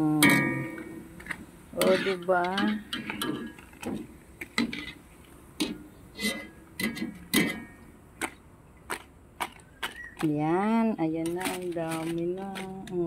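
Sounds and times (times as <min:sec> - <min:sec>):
metal strainer tapping a wok: 0:00.2 - 0:01.0.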